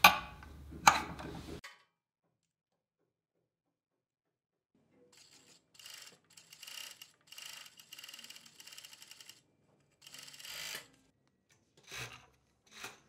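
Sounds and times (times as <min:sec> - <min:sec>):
overlock sewing machine running: 0:05.2 - 0:09.4, 0:10.0 - 0:11.0.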